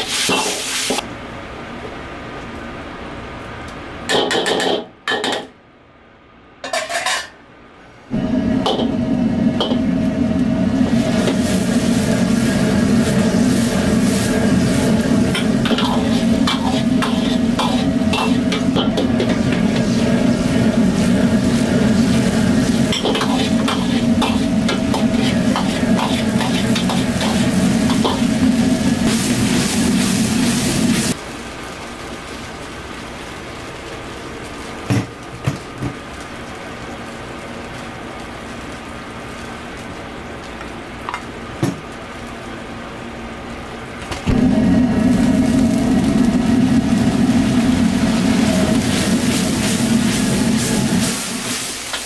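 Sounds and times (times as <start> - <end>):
ladle clacking and scraping wok: 0.0 - 1.0, 6.6 - 7.4, 11.0 - 30.1, 48.6 - 52.0
sauce sizzling in a wok: 0.0 - 1.1, 8.1 - 52.0
gas burner roaring: 0.0 - 5.4, 6.6 - 52.0
metal ladle clattering on wok: 6.6 - 7.4.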